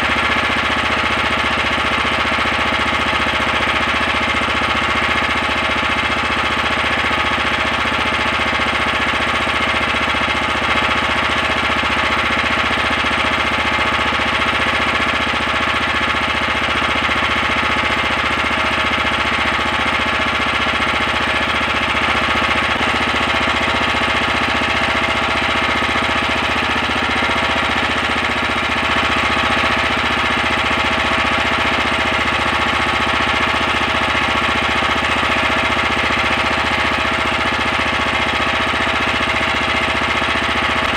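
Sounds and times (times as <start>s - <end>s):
small boat engine running: 0.0s - 40.9s.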